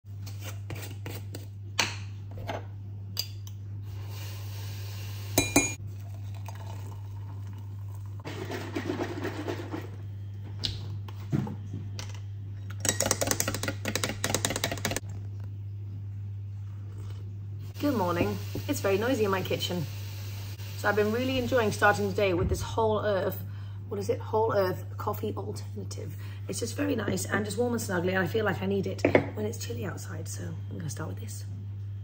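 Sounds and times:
metal spoon clinking on mug: 5.4s - 5.8s
steady low hum: 15.0s - 32.0s.

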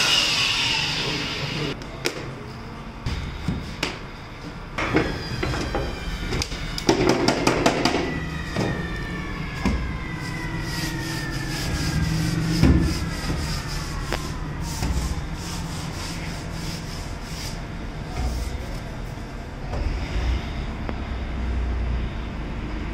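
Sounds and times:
router spindle whine winding down: 0.0s - 1.8s, 8.0s - 14.6s.

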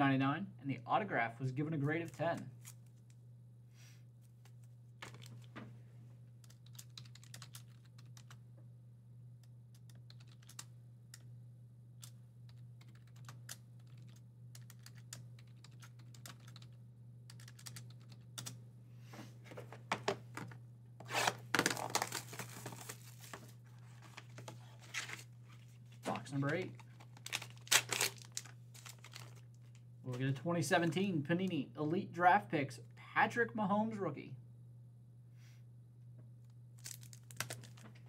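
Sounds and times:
steady low hum: 0.0s - 38.0s
wrapping tearing and crinkling: 21.0s - 29.8s, 36.8s - 37.9s.

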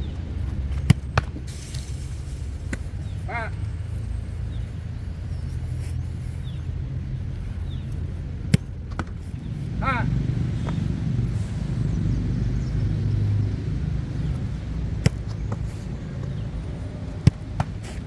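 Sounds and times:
football being kicked: 0.7s - 1.5s, 8.4s - 9.2s, 15.0s - 15.7s, 17.1s - 18.0s.

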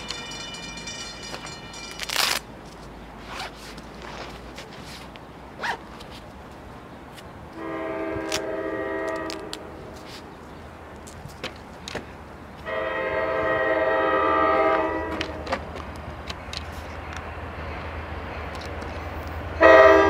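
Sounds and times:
train horn chord: 7.6s - 10.0s, 12.7s - 15.5s, 19.6s - 20.0s.

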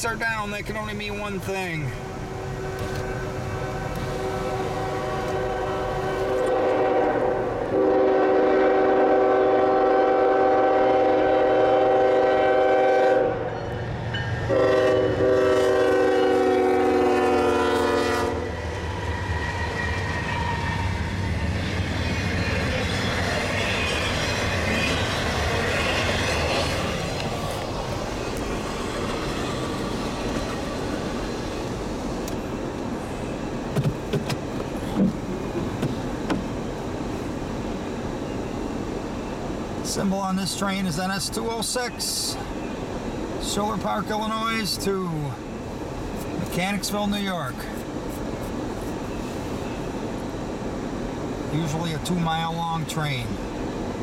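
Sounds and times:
locomotive engine rumble: 0.0s - 54.0s
locomotive horn blasts: 2.0s - 13.6s, 14.5s - 18.6s.

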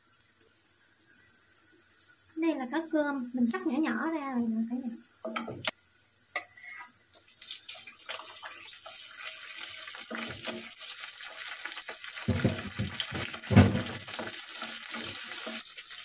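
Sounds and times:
fish frying in a pan: 0.0s - 16.0s
wooden spatula scraping a pan: 10.0s - 10.9s, 12.3s - 15.8s
loud knocks: 12.3s - 14.0s.

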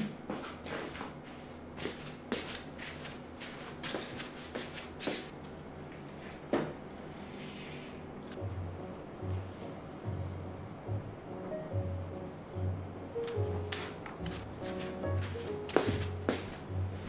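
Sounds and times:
soft footsteps: 0.3s - 5.3s, 13.2s - 17.0s.

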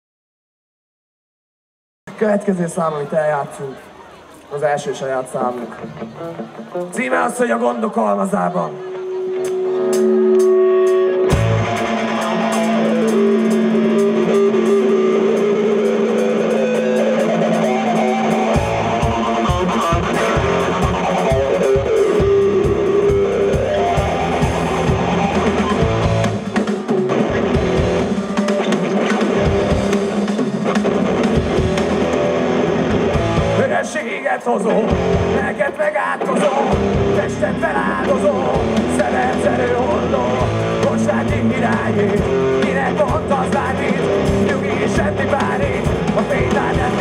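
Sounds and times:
electric guitars: 5.2s - 47.0s
bass guitar: 8.7s - 34.0s, 34.6s - 47.0s
drum kit: 9.3s - 34.0s, 34.7s - 47.0s.

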